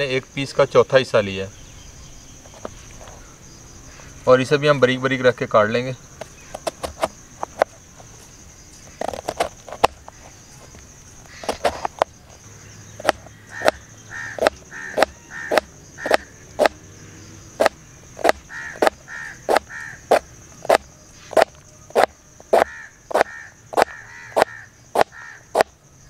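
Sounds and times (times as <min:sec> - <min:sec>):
crows cawing: 0:11.2 - 0:11.6, 0:13.0 - 0:16.4, 0:18.4 - 0:20.3, 0:22.6 - 0:25.6.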